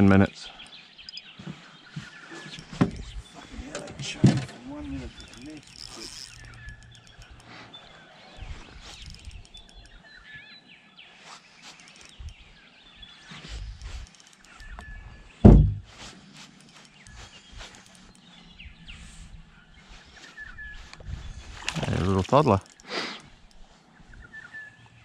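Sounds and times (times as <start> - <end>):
faint bird chirps: 0.2 - 3.8, 4.6 - 25.0
small clicks and knocks: 3.7 - 7.5, 13.5 - 14.9, 16.4 - 18.2
loud low thump: 15.4 - 15.9.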